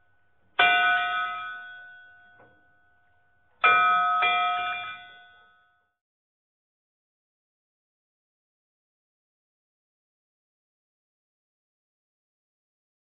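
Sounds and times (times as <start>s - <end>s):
bell-like chimes: 0.6s - 6.0s.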